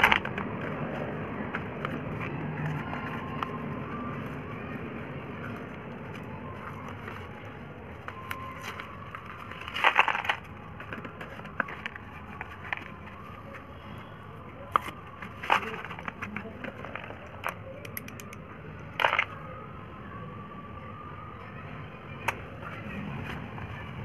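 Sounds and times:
cardboard box rustling: 0:05.5 - 0:17.3
slate pencils clicking: 0:16.8 - 0:18.4.

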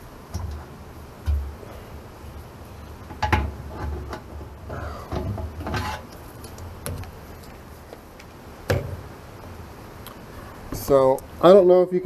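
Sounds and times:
rattling and scraping: 0:03.1 - 0:07.6.

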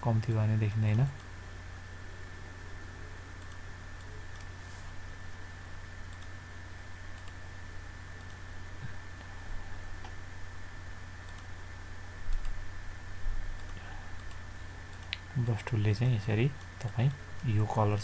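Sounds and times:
steady low hum: 0:00.0 - 0:18.0
computer mouse and keyboard clicks: 0:13.6 - 0:16.1.

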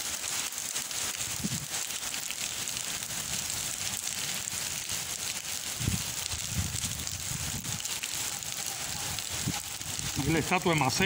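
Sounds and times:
heavy rain on pavement: 0:00.0 - 0:11.0
wind buffeting microphone: 0:01.2 - 0:01.7, 0:05.6 - 0:11.0.

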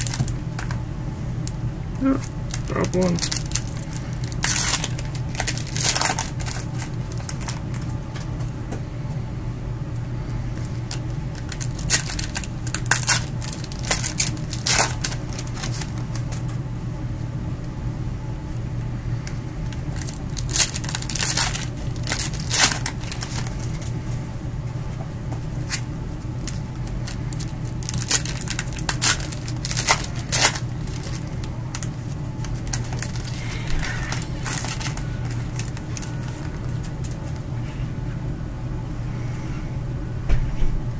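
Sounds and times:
foil wrappers tearing and crinkling: 0:00.0 - 0:00.8, 0:02.2 - 0:08.3, 0:10.6 - 0:16.6, 0:19.6 - 0:23.9, 0:25.6 - 0:37.4
steady low hum: 0:00.0 - 0:40.9.

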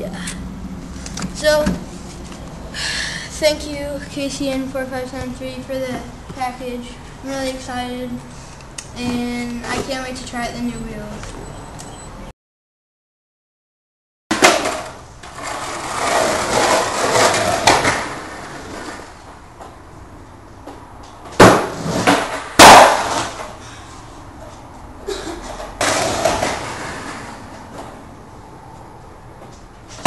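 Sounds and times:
skateboard clattering slaps: 0:14.3 - 0:15.0, 0:21.4 - 0:23.5
skateboard wheels rolling on wood: 0:14.4 - 0:19.8, 0:20.6 - 0:23.6, 0:25.5 - 0:28.1.

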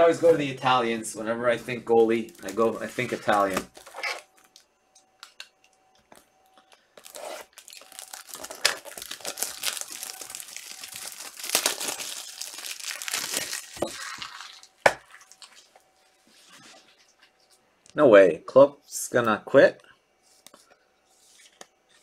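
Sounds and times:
wrapper crinkling and tearing: 0:02.0 - 0:04.6, 0:07.0 - 0:15.8.

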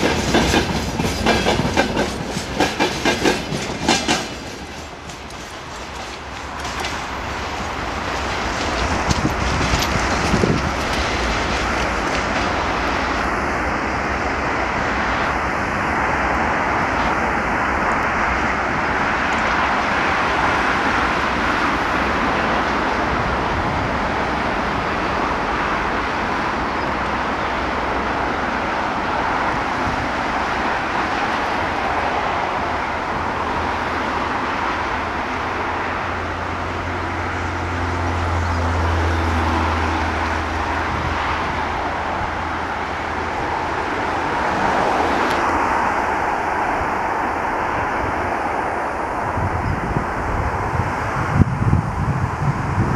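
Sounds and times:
sharp rail clacks: 0:00.0 - 0:12.8
train wheels rumbling on rails: 0:00.0 - 0:52.9.

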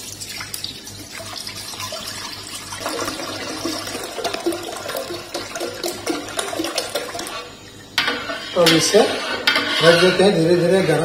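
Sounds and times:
milk pouring into a steel pot: 0:00.0 - 0:07.6.

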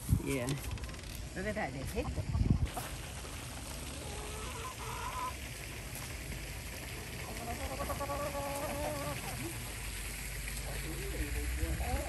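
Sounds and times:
hens calling softly: 0:03.9 - 0:05.4, 0:07.2 - 0:09.6.

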